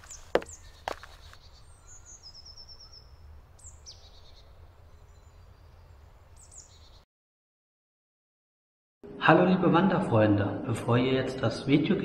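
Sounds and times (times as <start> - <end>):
birds chirping: 0.0 - 7.0.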